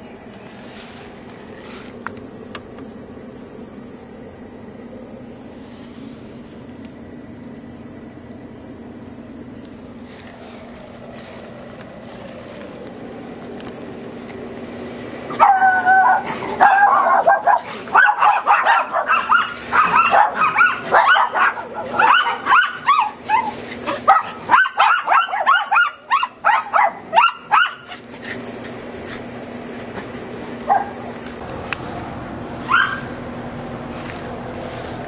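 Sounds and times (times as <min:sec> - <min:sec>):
dog yip: 0:15.3 - 0:28.0, 0:32.7 - 0:33.1
small dogs barking: 0:15.3 - 0:29.4, 0:30.1 - 0:31.2, 0:32.6 - 0:33.4.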